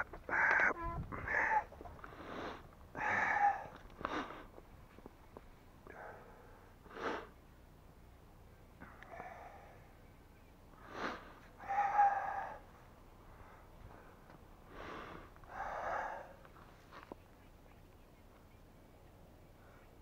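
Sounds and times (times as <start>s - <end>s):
person breathing: 1.1s - 4.6s, 5.8s - 7.4s, 8.8s - 10.0s, 10.8s - 16.5s.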